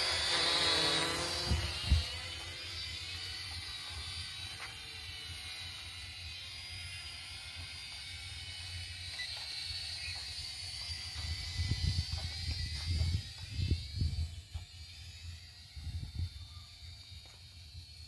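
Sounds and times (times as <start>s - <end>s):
drone propellers whining: 0.0s - 18.0s
wind rumbling on microphone: 1.3s - 2.2s, 11.2s - 14.6s, 15.8s - 16.4s.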